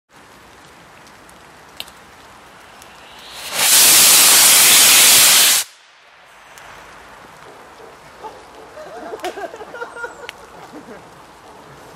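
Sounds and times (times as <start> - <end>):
rocket motor rushing: 2.8 - 5.8.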